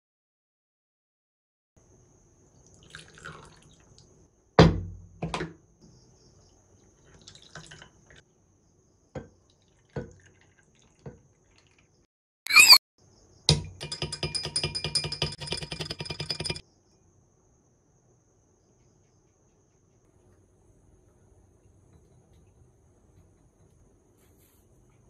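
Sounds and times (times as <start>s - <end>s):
syrup dripping: 2.6s - 4.1s
liquid pouring over ice: 2.7s - 4.1s, 7.0s - 8.2s, 9.5s - 11.9s.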